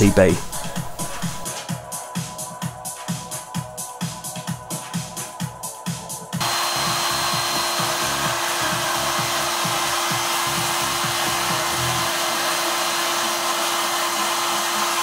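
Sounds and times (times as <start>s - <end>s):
faint electronic music with beat: 0.0s - 12.1s
vacuum cleaner running: 6.4s - 15.0s.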